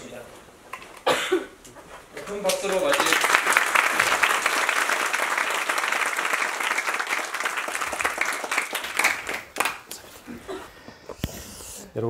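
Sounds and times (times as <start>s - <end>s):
audience applauding: 2.2s - 10.1s.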